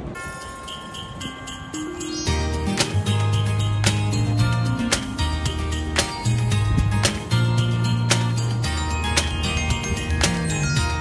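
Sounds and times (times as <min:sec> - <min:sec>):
sharp percussive hits: 0:02.2 - 0:11.0
held bass notes: 0:02.3 - 0:11.0.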